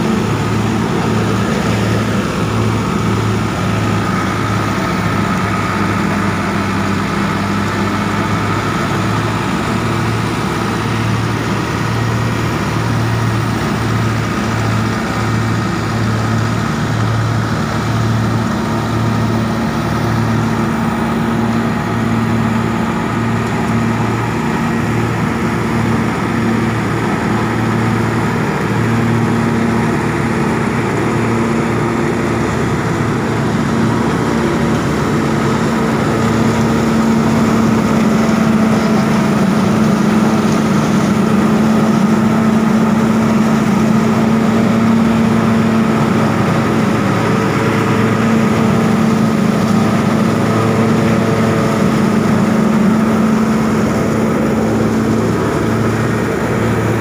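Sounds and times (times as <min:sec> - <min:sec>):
straw chopper machine whirring: 0:00.0 - 0:57.0
tractor diesel engine running: 0:00.0 - 0:57.0.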